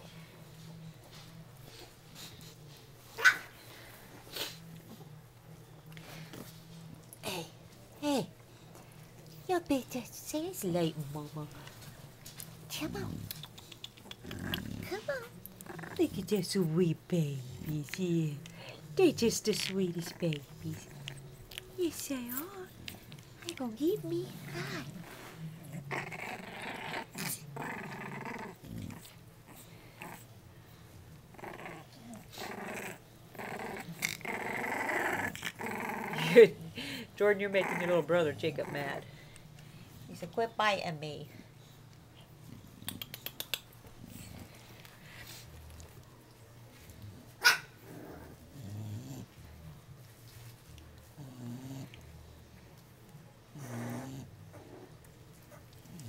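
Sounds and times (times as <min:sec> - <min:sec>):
puppies growling: 0:10.8 - 0:40.1, 0:41.4 - 0:56.0.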